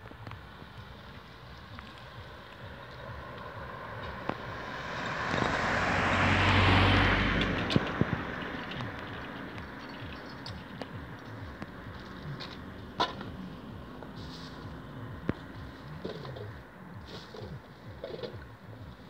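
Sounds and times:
vehicle driving past: 1.7 - 16.0.

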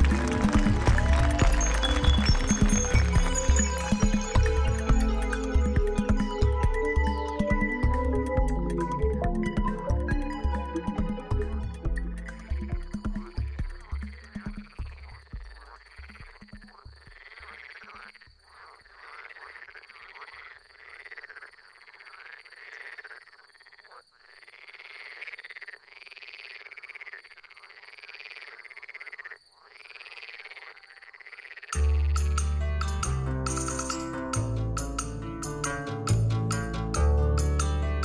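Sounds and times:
loud music: 0.0 - 14.1, 32.1 - 38.0
frogs croaking: 12.2 - 32.3.

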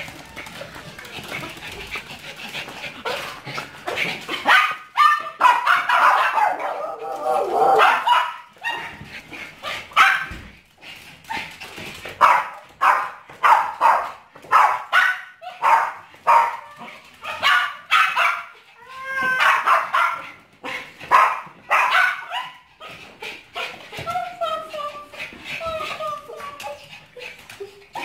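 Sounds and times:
dog barking in high yaps: 4.4 - 9.0, 10.0 - 10.3, 12.2 - 18.5, 19.2 - 20.2, 21.1 - 22.6
dog whining: 18.7 - 19.7.

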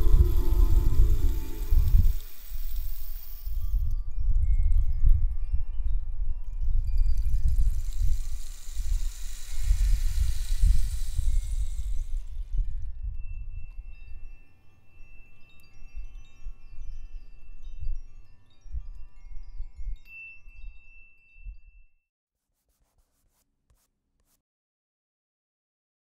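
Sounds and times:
low rumbling swells: 0.0 - 3.8.

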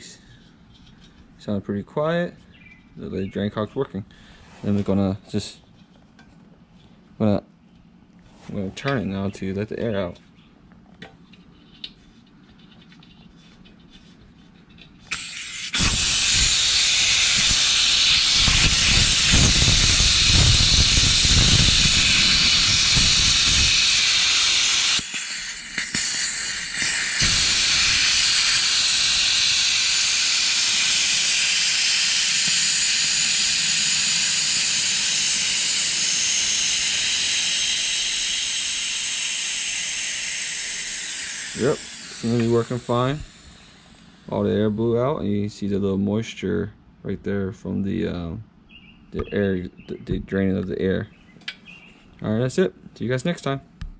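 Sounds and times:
compressed air hissing from valve: 15.1 - 44.6.

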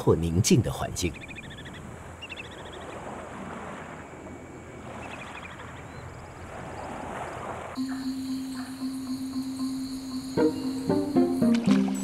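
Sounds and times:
water noise: 0.0 - 12.0
wind: 0.0 - 12.0
bird trill: 1.1 - 3.0, 7.8 - 12.0.

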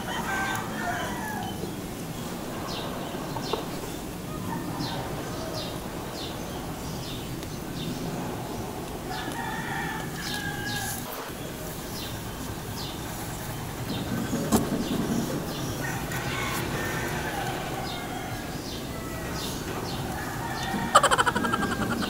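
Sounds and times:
rooster crowing: 0.0 - 1.7, 9.1 - 11.1, 15.5 - 22.0.

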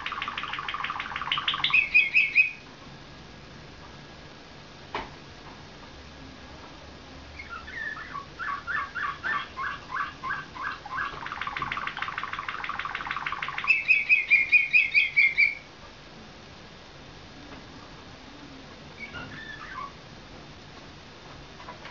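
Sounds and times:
canary singing: 0.0 - 2.7, 7.3 - 15.7, 19.0 - 20.0.

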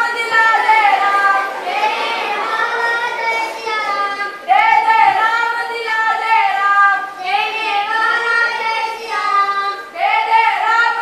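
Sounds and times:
child singing slow melody: 7.0 - 10.0.

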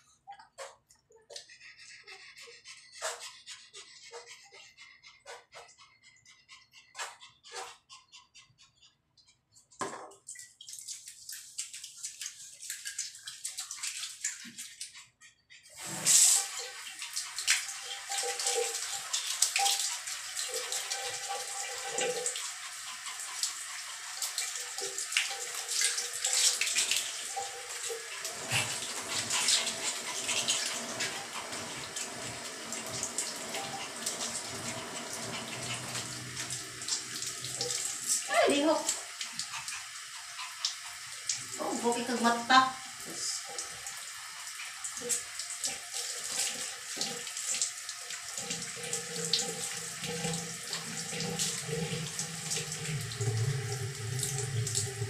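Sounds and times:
shower water splashing: 9.8 - 55.0.

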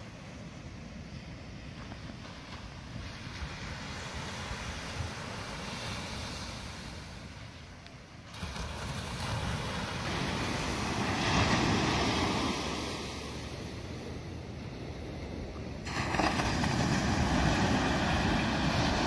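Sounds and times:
ocean surf on a sandy beach: 0.0 - 19.0.

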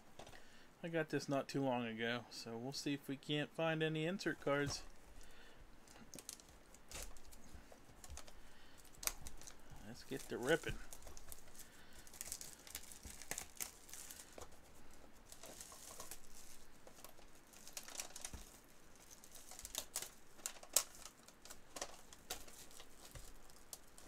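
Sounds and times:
wrapper crinkling and tearing: 5.9 - 24.0.

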